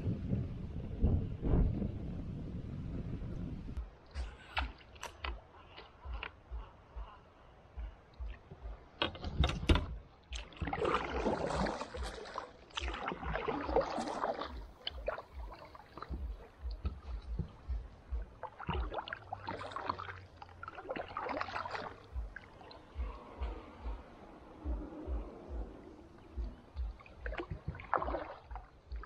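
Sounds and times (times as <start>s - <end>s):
light low knocks: 3.8s - 13.8s, 14.5s - 19.2s, 22.0s - 29.0s
paddle strokes splashing water: 10.2s - 29.0s.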